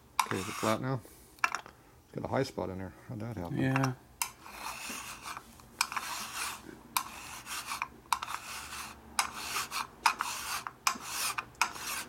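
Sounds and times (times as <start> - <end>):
file rasping on metal: 0.2 - 0.8, 4.2 - 12.0.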